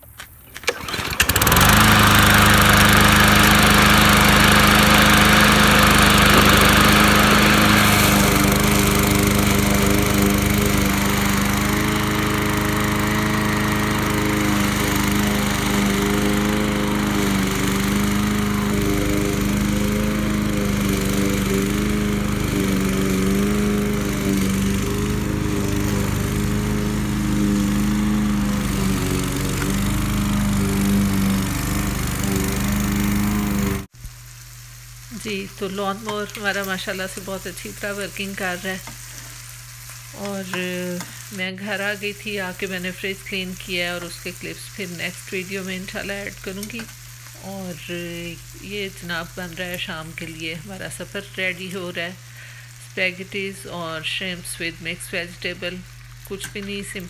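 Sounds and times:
lawn mower engine running: 0.4s - 34.0s.

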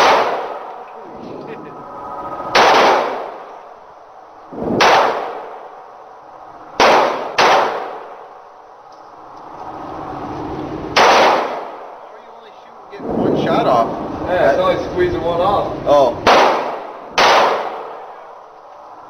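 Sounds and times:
handgun shots echoing indoors: 0.0s - 0.7s, 2.6s - 3.4s, 4.8s - 5.6s, 6.8s - 8.2s, 11.0s - 11.8s, 16.2s - 18.1s.

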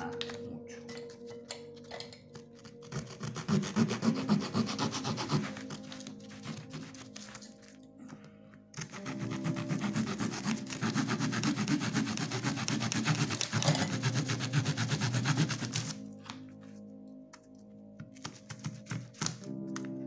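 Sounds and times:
small saw cutting wooden stick: 8.8s - 16.0s.

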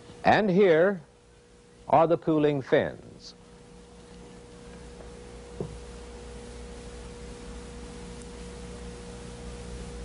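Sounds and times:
low hum: 3.3s - 10.0s.

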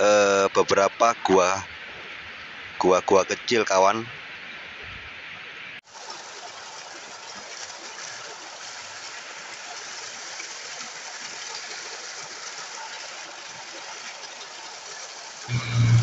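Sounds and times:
small waterfall rushing: 5.8s - 16.0s.

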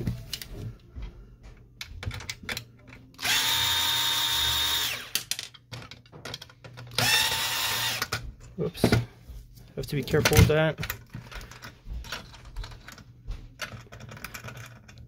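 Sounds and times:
cordless drill whining: 3.2s - 5.2s, 6.9s - 8.1s.

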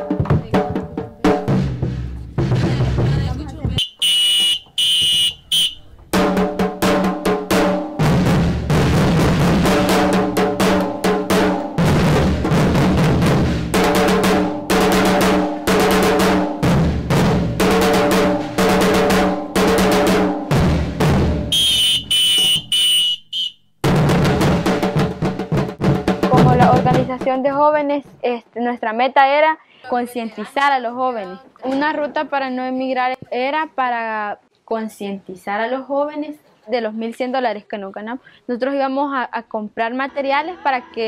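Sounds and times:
bass drums and snare drum: 0.0s - 27.5s
shrill whistle: 3.8s - 5.9s, 21.5s - 23.7s.

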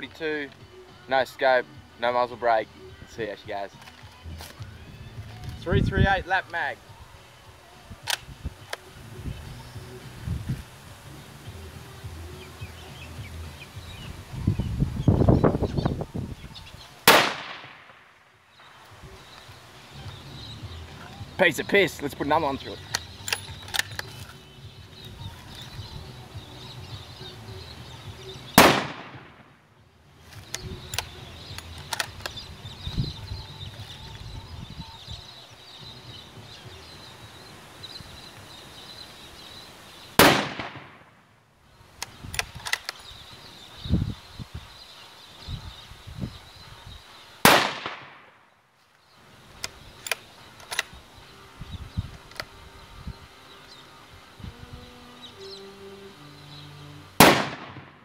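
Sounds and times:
rifle bolt clicks: 8.0s - 8.8s, 22.9s - 24.4s, 28.6s - 29.2s, 30.4s - 32.4s, 42.0s - 43.0s, 49.6s - 51.0s, 52.3s - 52.5s
rifle shots: 17.0s - 18.2s, 28.6s - 29.5s, 40.2s - 41.1s, 47.4s - 48.4s, 57.2s - 58.0s.

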